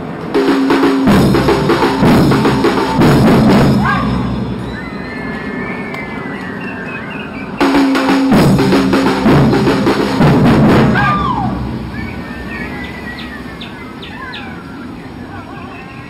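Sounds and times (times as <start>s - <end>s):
samba percussion band drumming: 0.3s - 4.8s, 7.6s - 13.0s.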